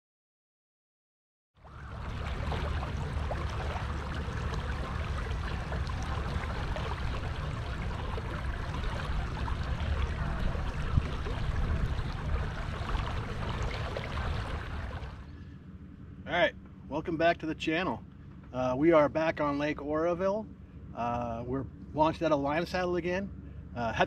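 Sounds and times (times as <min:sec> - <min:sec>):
water rushing along hull: 0:01.6 - 0:15.4
low rumble: 0:01.6 - 0:22.4.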